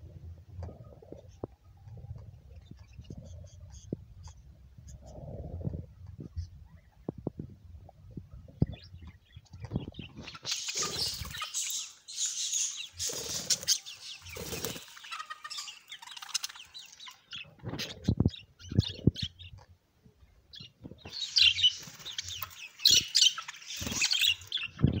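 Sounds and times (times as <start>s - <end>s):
budgerigars chirping: 8.6s - 19.5s, 20.5s - 25.0s
wings flapping: 13.0s - 15.4s, 21.6s - 24.5s.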